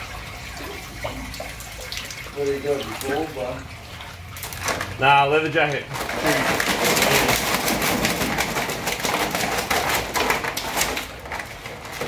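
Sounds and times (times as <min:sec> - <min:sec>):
shells scraping on plastic crate: 0:05.9 - 0:12.0.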